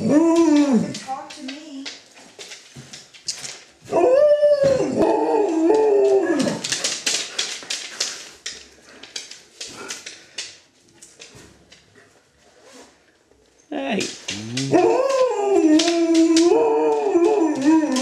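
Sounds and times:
dog howling: 0.0s - 1.0s, 3.9s - 6.7s, 14.3s - 18.0s.

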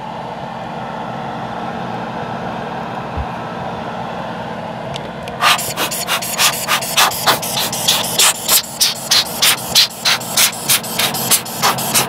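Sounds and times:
airbrush hissing puffs: 5.4s - 12.0s.

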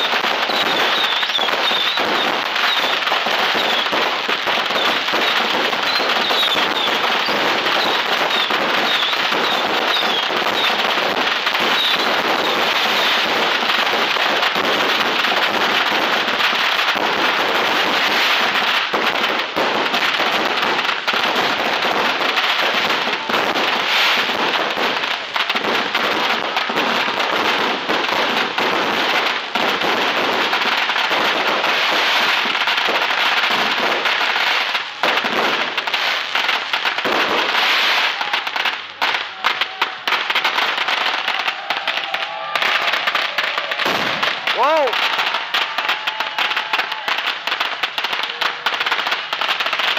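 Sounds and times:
fireworks bangs and crackling: 0.0s - 49.9s.

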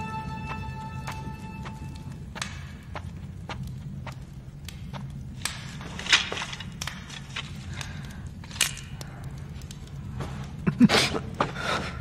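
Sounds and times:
soft footsteps: 0.0s - 7.5s
steady low hum: 0.0s - 12.0s.

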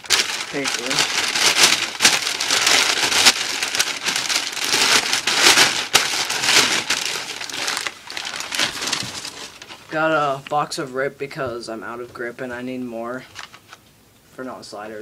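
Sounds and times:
paper crinkling and rustling: 0.0s - 10.6s, 13.2s - 13.8s.

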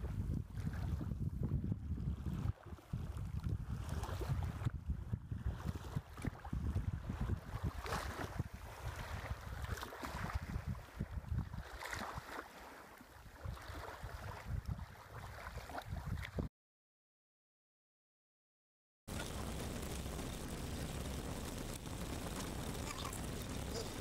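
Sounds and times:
wind buffeting microphone: 0.0s - 11.7s, 13.4s - 16.5s
small waves lapping: 7.5s - 16.4s.

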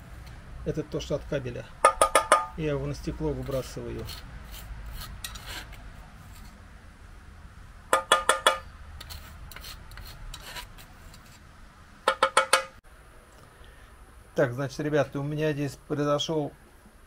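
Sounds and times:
metal fork scraping dross: 3.3s - 6.6s, 8.0s - 11.5s.

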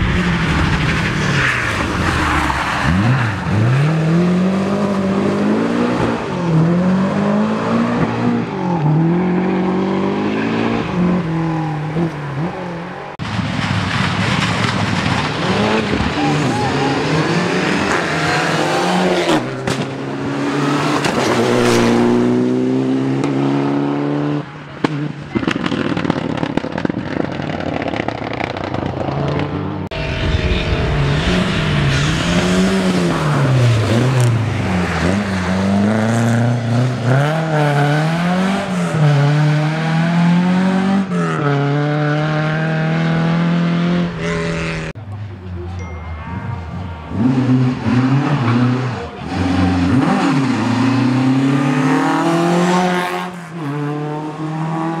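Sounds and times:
rally car engine revving: 0.0s - 45.1s, 46.6s - 55.0s.

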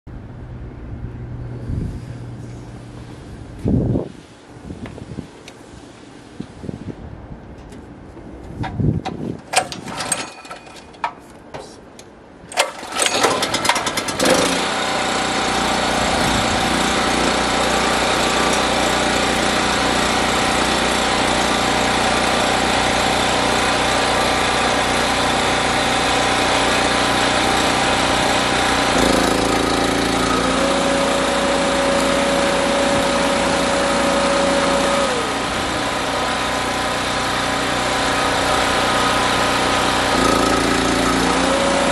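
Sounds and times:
generator starting clicks and clatters: 7.5s - 41.9s
generator engine running: 9.4s - 41.9s.

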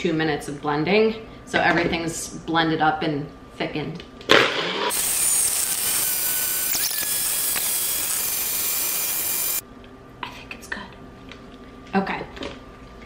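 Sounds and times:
blender motor whirring: 4.8s - 9.6s.

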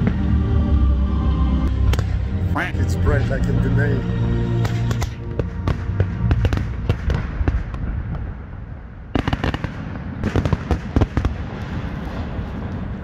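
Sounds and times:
fireworks popping: 4.6s - 8.3s, 9.1s - 13.0s.

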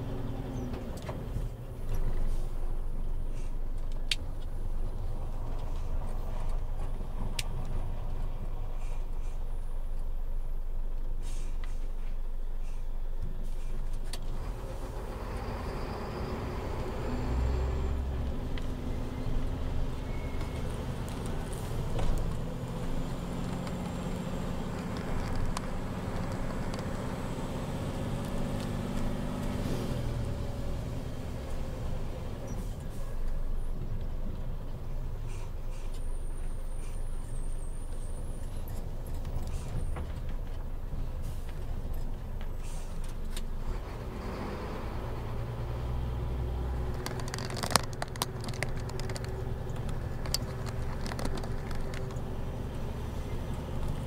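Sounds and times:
truck diesel engine running: 14.3s - 54.0s.

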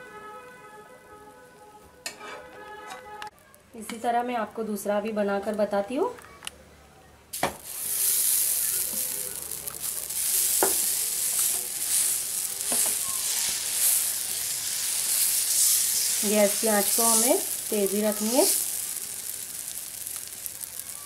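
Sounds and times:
batter sizzling on griddle: 7.4s - 21.0s
ladle clicking on pan: 7.4s - 21.0s.

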